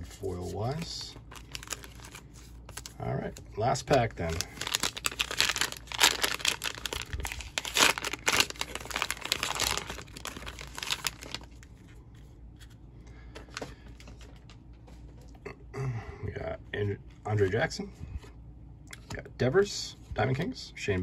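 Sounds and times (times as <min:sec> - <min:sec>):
plastic wrapper tearing and crinkling: 0:01.2 - 0:03.0, 0:04.2 - 0:11.9.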